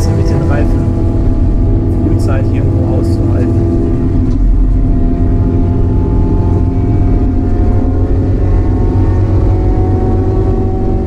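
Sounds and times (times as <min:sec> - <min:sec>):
car engine running loud: 0:00.0 - 0:11.0.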